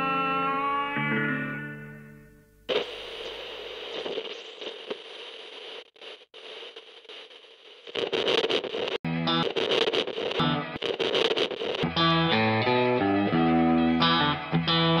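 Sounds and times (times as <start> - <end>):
plucked string music: 0.0 - 2.4, 11.9 - 15.0
crackling static hiss: 1.8 - 15.0.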